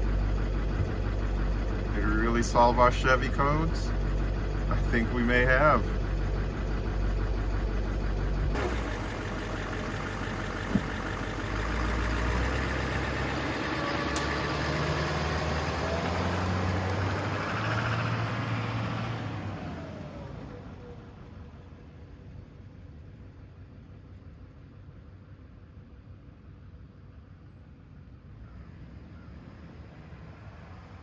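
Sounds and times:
diesel pickup engine idling: 0.0s - 31.0s.

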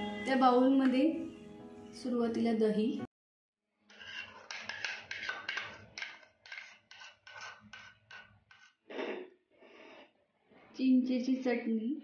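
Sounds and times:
spoon scraping yogurt from bowl: 3.8s - 8.9s.

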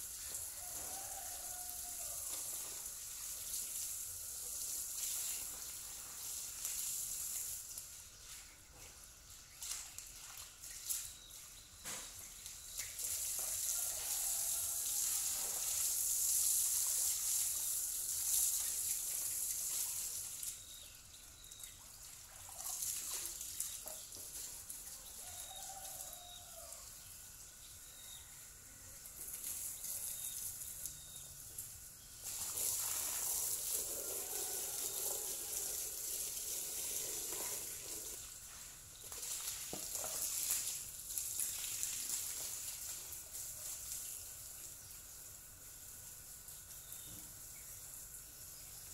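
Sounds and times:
garden hose water splashing: 0.0s - 48.9s
rooster crowing: 0.4s - 2.5s, 13.4s - 15.6s, 25.0s - 27.0s, 33.7s - 36.1s.

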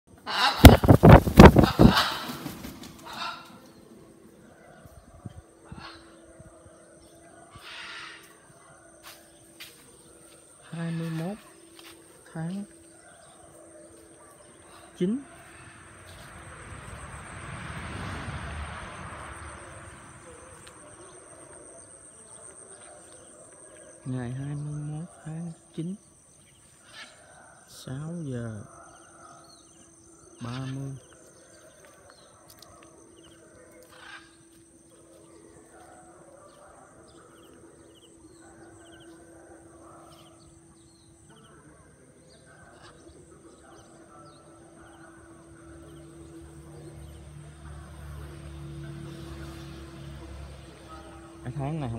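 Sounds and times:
insects trilling: 0.2s - 51.9s
rushing noise and low rumble: 15.5s - 21.0s.

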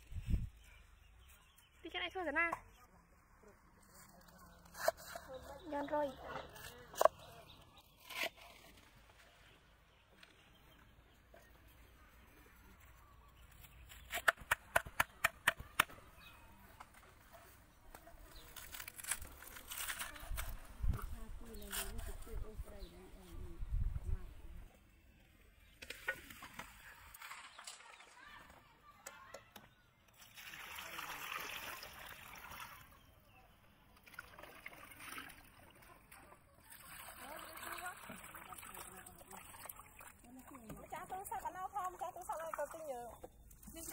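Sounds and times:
water pouring from jug: 30.2s - 32.8s, 36.7s - 41.0s
hand washing leaves in water: 30.2s - 32.9s, 34.0s - 42.9s.

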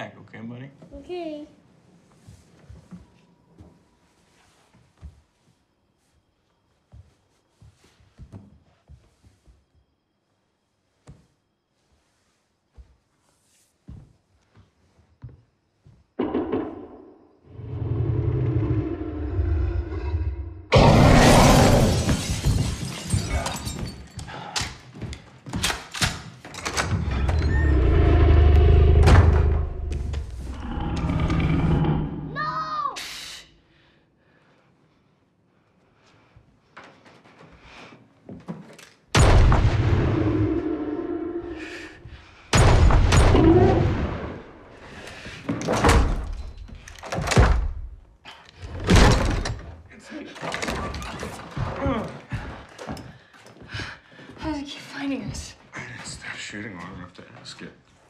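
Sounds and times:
loud shattering crash: 20.7s - 24.1s
heavy booms against wooden cabin: 39.2s - 40.6s, 42.1s - 49.8s.

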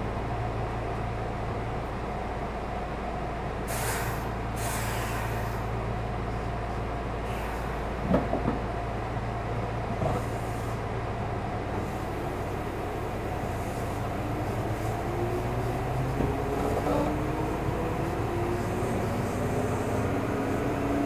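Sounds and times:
electric train hum: 0.0s - 21.0s
air brakes hissing: 3.6s - 5.8s, 7.2s - 7.9s, 10.1s - 10.9s, 13.4s - 15.2s.

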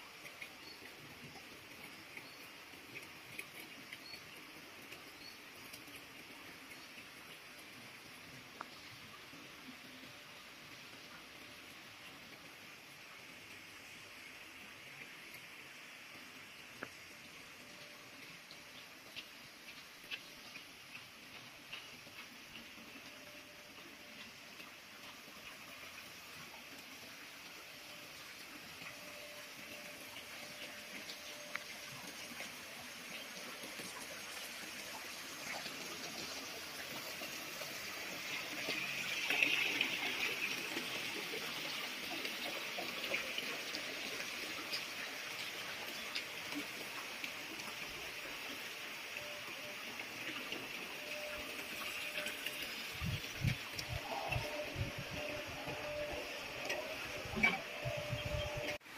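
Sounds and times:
water spraying into pond: 0.0s - 58.9s
soft ticks or chirps: 17.8s - 25.8s.

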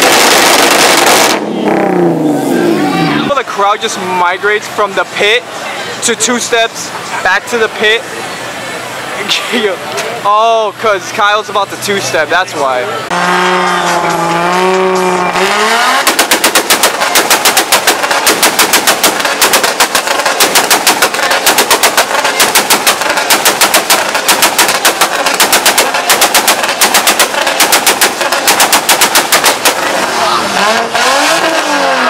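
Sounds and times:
exhaust bangs and pops: 0.0s - 5.4s, 13.1s - 32.0s
car engine revving: 0.0s - 32.0s.

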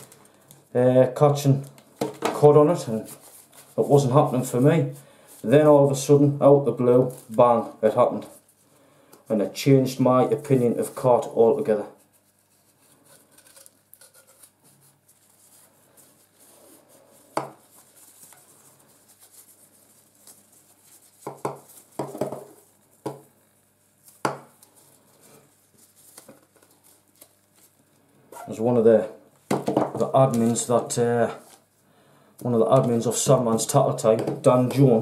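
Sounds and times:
faint rustling of unwrapping: 2.7s - 6.2s, 6.8s - 9.4s, 10.2s - 28.2s, 30.1s - 31.9s.

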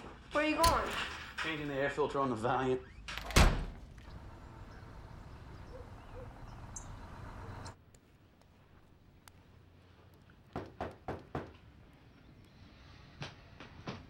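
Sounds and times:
low steady hum: 3.7s - 7.8s.

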